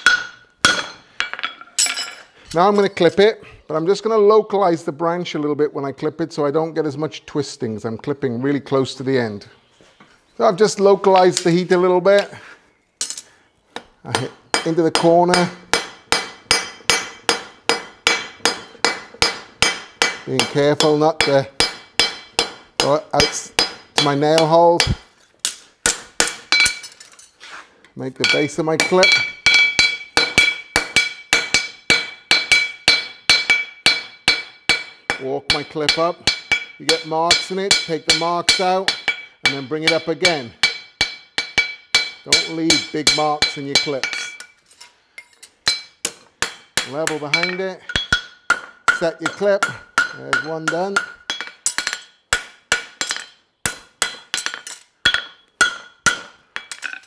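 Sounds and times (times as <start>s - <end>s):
hammer striking horseshoe on anvil: 0.0s - 2.1s, 14.1s - 27.0s, 28.2s - 44.6s, 45.2s - 57.0s.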